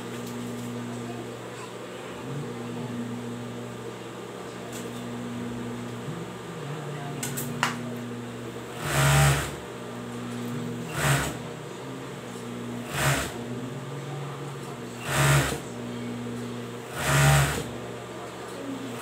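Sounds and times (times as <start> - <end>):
steady hum: 0.0 - 19.0
overlock machine stitching fabric: 8.7 - 9.6, 10.9 - 11.4, 12.8 - 13.4, 15.0 - 15.6, 16.9 - 17.8.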